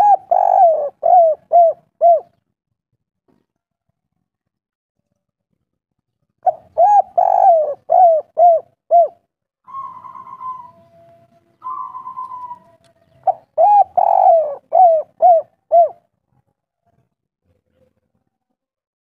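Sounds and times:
dove cooing: 0:00.0 - 0:02.4, 0:06.4 - 0:16.0.

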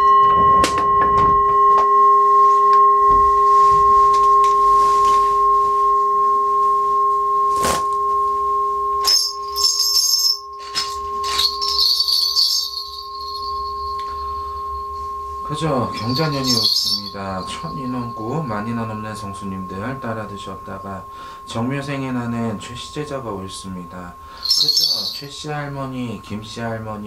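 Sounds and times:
steady ringing tone: 0:00.0 - 0:27.0
ritual bells jingling: 0:09.0 - 0:27.0.

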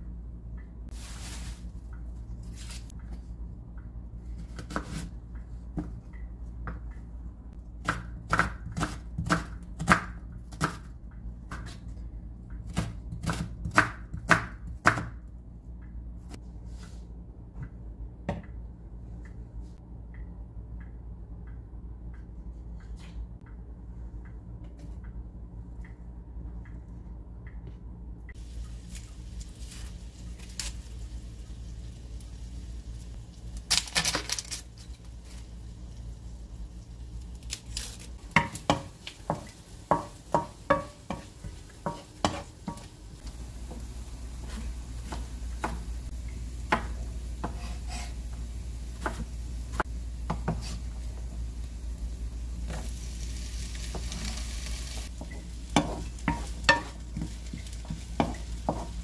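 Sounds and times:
rustle: 0:00.9 - 0:01.8
onions sizzling in a frying pan: 0:28.4 - 0:59.0
wooden spoon stirring in pan: 0:38.4 - 0:42.8, 0:50.2 - 0:51.3, 0:52.6 - 0:59.0
knife chopping on wooden board: 0:46.7 - 0:48.2, 0:49.0 - 0:49.3.

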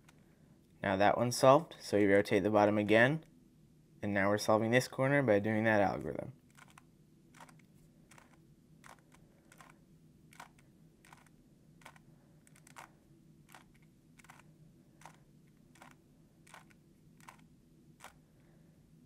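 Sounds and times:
puzzle cube clicks: 0:06.5 - 0:18.2.

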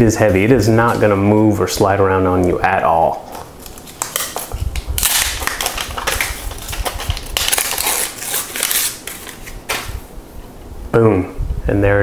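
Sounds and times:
plastic film crinkling as peeled: 0:03.2 - 0:10.0.

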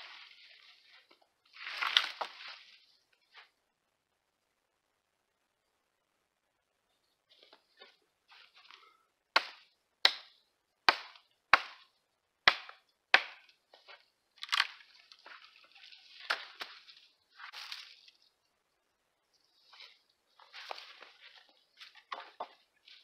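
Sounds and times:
rustling brush: 0:00.0 - 0:03.6, 0:14.8 - 0:18.5, 0:19.4 - 0:23.0
wood cracking: 0:01.1 - 0:02.6, 0:12.5 - 0:18.3
hatchet chopping wood: 0:09.4 - 0:10.3, 0:10.9 - 0:11.9, 0:12.5 - 0:13.4.

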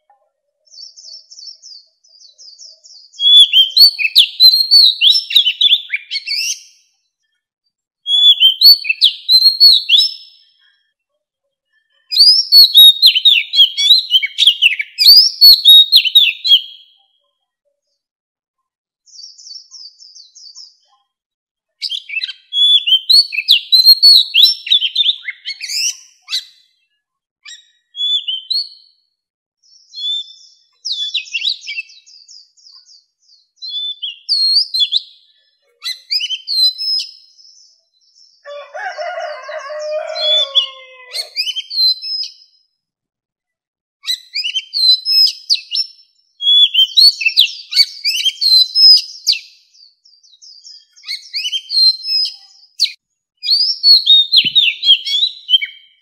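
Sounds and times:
bird singing whistled phrases: 0:02.5 - 0:06.8, 0:08.0 - 0:10.4, 0:12.1 - 0:17.0, 0:21.8 - 0:26.7, 0:27.4 - 0:28.9, 0:29.7 - 0:35.2, 0:35.8 - 0:37.8, 0:40.0 - 0:42.5, 0:44.0 - 0:56.0.

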